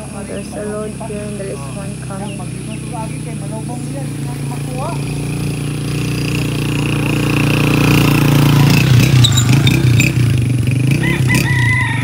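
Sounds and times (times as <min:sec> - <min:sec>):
vehicle engine passing: 0:00.0 - 0:12.0.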